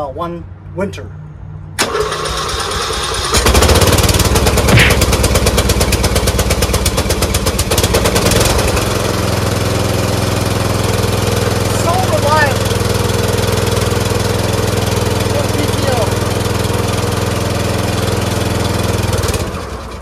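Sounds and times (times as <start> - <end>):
starter motor cranking: 1.8 - 8.7
lawn tractor engine running: 1.8 - 20.0.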